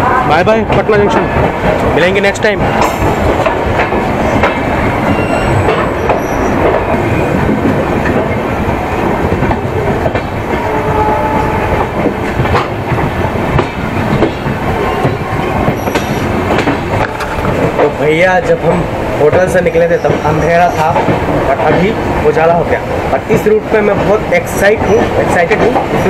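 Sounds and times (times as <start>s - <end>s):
train rumbling: 0.0s - 26.0s
wheels clicking over rail joints: 11.7s - 18.7s.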